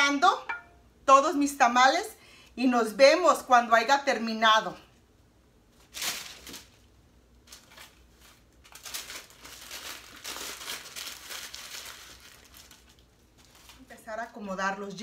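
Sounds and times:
corn husk and paper crinkling: 5.7s - 14.9s.

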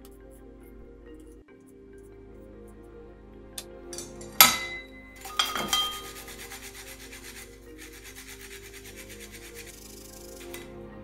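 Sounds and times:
metal grater clinking against bowl: 4.0s - 10.6s
ginger rasping on metal grater: 5.7s - 10.7s.

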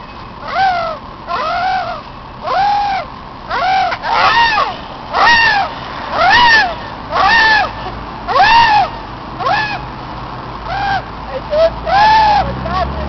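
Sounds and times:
person making squawking cries: 0.4s - 9.8s, 10.7s - 13.0s.

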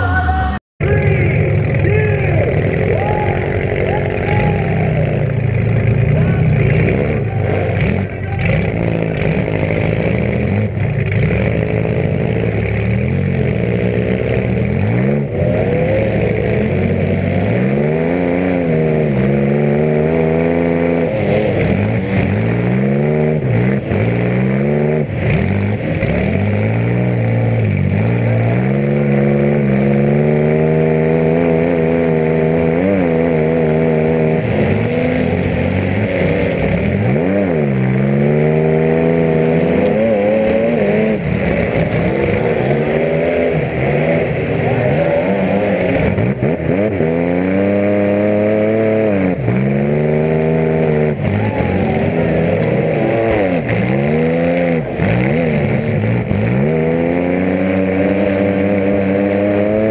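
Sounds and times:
car engine revving through open exhaust: 0.0s - 59.9s.

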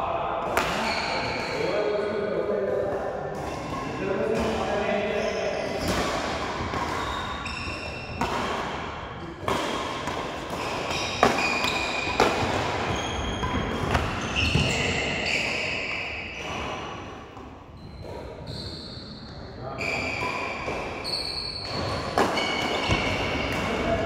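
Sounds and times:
shoes squeaking on court floor: 3.4s - 16.9s, 17.7s - 24.0s
racket striking shuttlecock: 8.1s - 14.2s.

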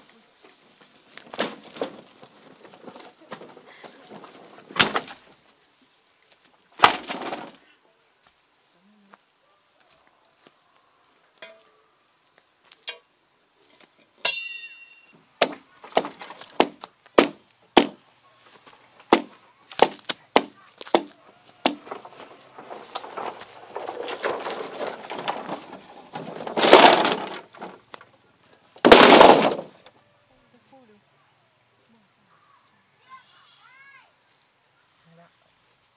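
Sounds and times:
wooden knocks of bamboo poles: 1.2s - 5.2s, 6.8s - 7.6s, 15.4s - 18.0s, 19.0s - 28.1s, 28.8s - 29.9s
poles scraping through grass: 18.4s - 28.0s.

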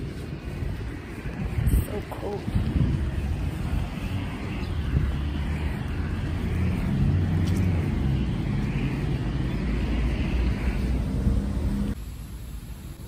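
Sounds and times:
traffic rumbling past: 0.0s - 12.0s.

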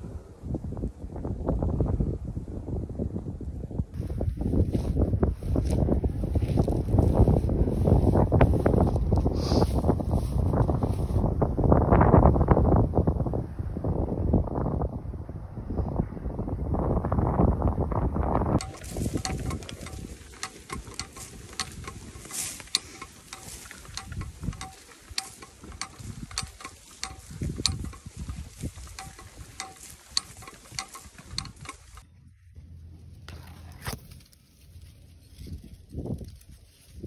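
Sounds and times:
dry grass crackling and rustling: 4.0s - 11.5s, 18.5s - 32.1s, 33.0s - 37.0s.

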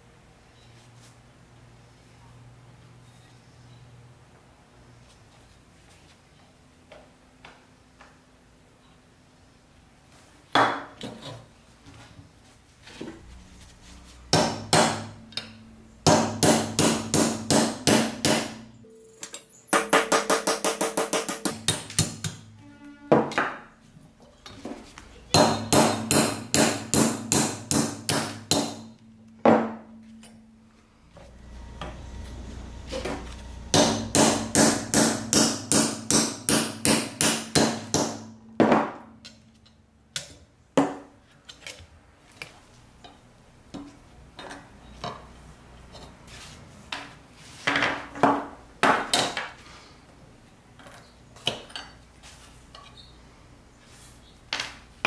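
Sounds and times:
hammer striking metal on anvil: 14.3s - 23.7s, 25.3s - 30.8s, 32.9s - 39.6s.

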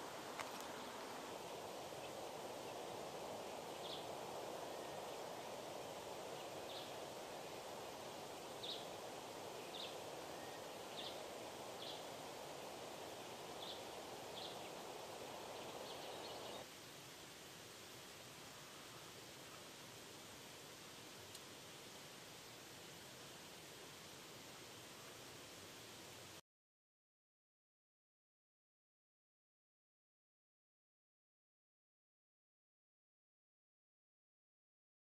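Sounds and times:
steady rustling hiss: 0.0s - 26.4s.

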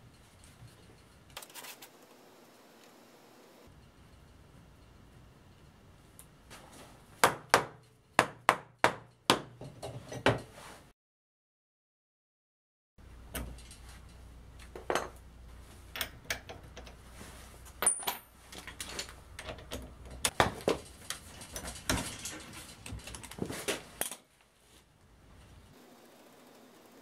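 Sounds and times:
metal tools clinking: 13.4s - 15.2s, 17.7s - 24.3s.

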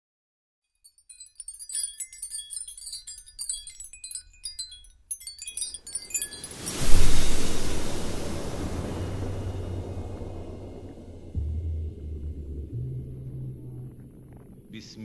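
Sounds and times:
high tinkling chime notes: 0.7s - 13.2s
whoosh of noise: 5.9s - 15.0s
faint low rumble: 6.6s - 15.0s.

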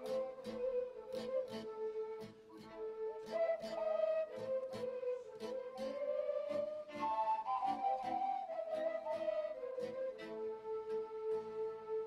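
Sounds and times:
end-blown flutes playing: 0.0s - 12.0s
violins: 2.6s - 12.0s.

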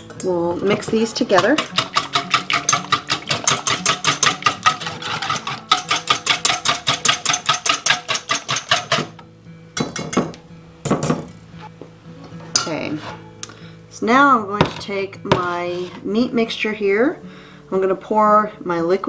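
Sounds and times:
whisk clicking against bowl: 1.3s - 9.0s.

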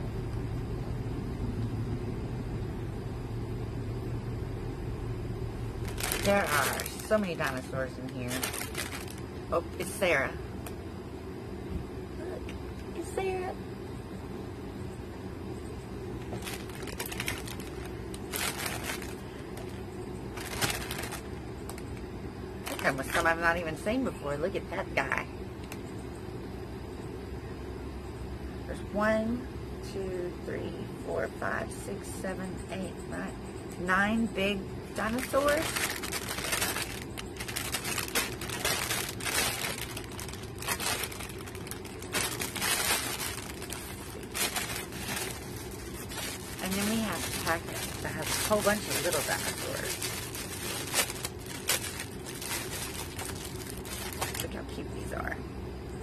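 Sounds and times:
low background hum: 0.0s - 56.0s
packaging rustling and crinkling: 5.8s - 10.0s, 16.2s - 22.0s, 22.6s - 23.3s, 35.0s - 54.6s.

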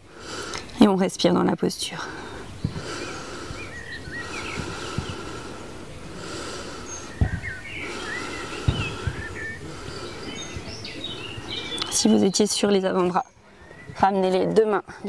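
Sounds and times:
woman breathing deeply: 0.0s - 0.7s, 2.0s - 11.7s
birds chirping: 0.0s - 15.0s
soft low thumps: 2.6s - 2.9s, 4.5s - 5.3s, 7.2s - 7.6s, 8.6s - 9.7s.

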